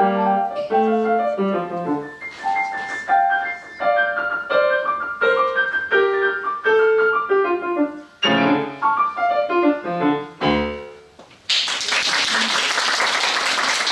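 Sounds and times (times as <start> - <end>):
grand piano playing: 0.0 - 11.2
audience applause: 11.5 - 13.9.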